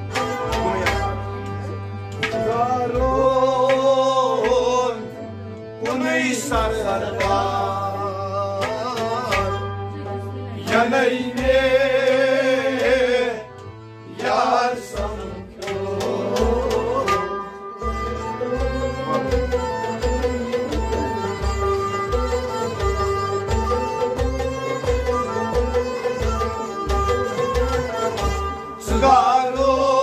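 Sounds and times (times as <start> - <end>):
harmonium chords: 0.0 - 30.0
man singing: 2.4 - 5.2, 5.8 - 9.6, 10.6 - 17.6, 28.8 - 30.0.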